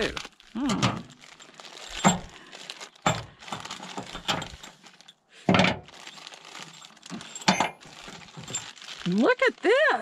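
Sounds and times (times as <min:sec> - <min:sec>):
plastic bags crinkling: 0:00.0 - 0:10.0
small metal pieces clinking: 0:05.9 - 0:09.4.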